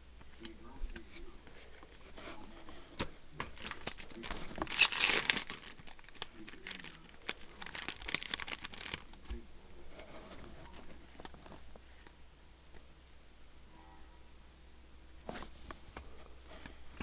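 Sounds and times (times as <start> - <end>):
foil wrapper crinkling and tearing: 3.5 - 9.4.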